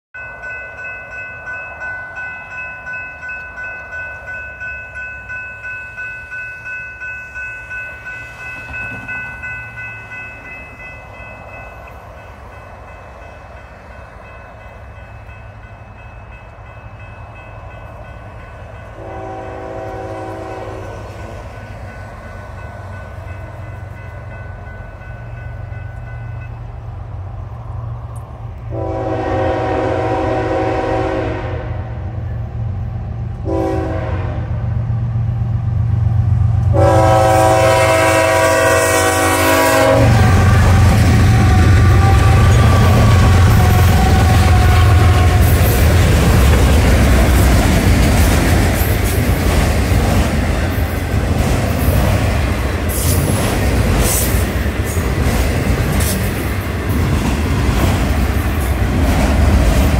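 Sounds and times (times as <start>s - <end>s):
railroad crossing bell ringing: 0.2s - 27.2s, 28.1s - 32.5s, 36.6s - 57.5s
locomotive horn blasts: 18.9s - 21.1s, 28.7s - 32.0s, 33.4s - 34.6s, 36.7s - 45.7s.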